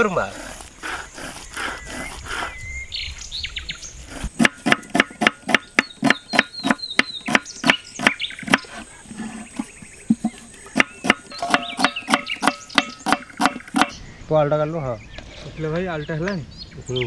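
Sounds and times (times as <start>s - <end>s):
birds chirping: 0.0s - 17.0s
quick evenly spaced knocks: 9.6s - 14.0s.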